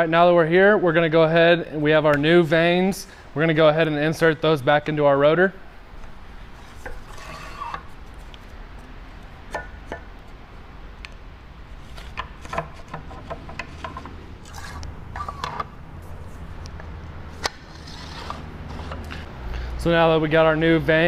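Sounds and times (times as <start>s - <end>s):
vanes rubbing in rotor slots: 6.6s - 8.3s, 11.8s - 16.5s, 17.3s - 19.3s.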